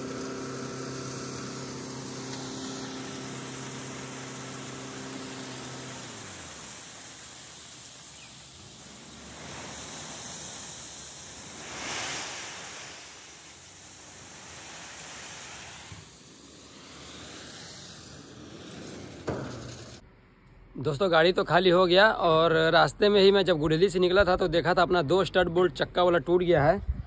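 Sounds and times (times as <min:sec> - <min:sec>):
load pouring from tipper trailer: 0:00.0 - 0:20.0.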